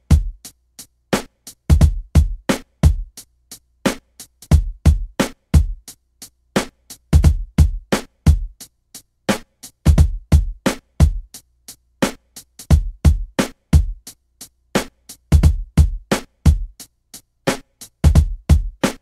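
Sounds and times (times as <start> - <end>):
percussive beat: 0.0 - 0.5, 1.2 - 3.2, 3.9 - 6.0, 6.6 - 8.7, 9.3 - 11.4, 12.0 - 19.0
deep kick drum: 1.7 - 3.1, 4.5 - 5.8, 7.2 - 8.6, 9.9 - 11.3, 12.7 - 14.0, 15.4 - 16.7, 18.1 - 18.8.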